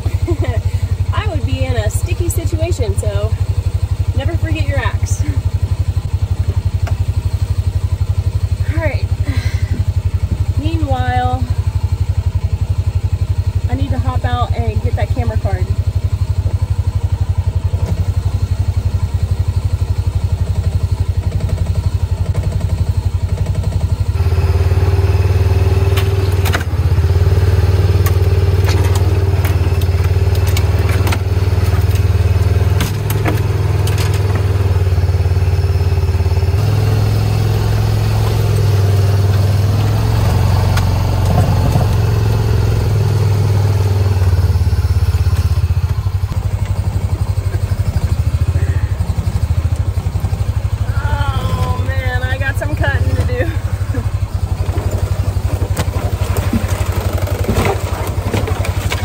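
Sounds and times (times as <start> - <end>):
utility vehicle engine running: 0.0 - 59.0
vehicle knocks and clatter: 27.8 - 34.8, 38.1 - 42.6, 45.2 - 59.0.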